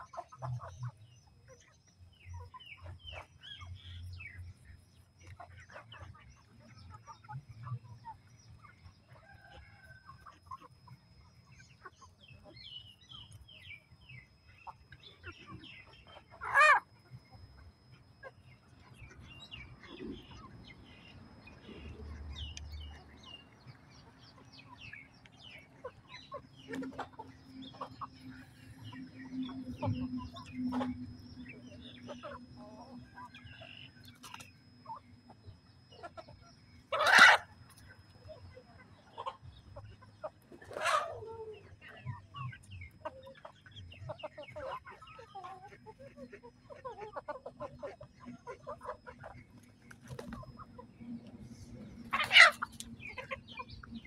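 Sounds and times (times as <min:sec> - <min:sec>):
chickens clucking: 0:00.0 - 0:54.0
loud chicken calls: 0:16.0 - 0:16.9, 0:36.9 - 0:37.6, 0:40.5 - 0:41.7, 0:52.0 - 0:53.7.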